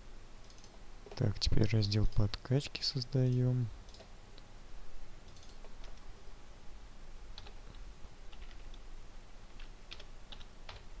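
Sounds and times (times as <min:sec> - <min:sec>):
steady low hum: 0:00.0 - 0:11.0
computer mouse clicks: 0:00.4 - 0:01.2, 0:03.3 - 0:04.5, 0:05.2 - 0:06.1, 0:07.4 - 0:08.8
keyboard keys clicking: 0:07.4 - 0:08.8, 0:09.6 - 0:10.9.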